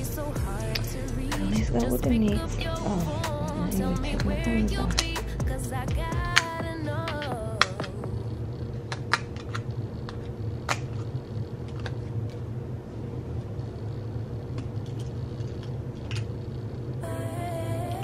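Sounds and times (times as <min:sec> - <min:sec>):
background music with singing: 0:00.0 - 0:08.3, 0:17.0 - 0:18.0
steady low hum: 0:00.0 - 0:18.0.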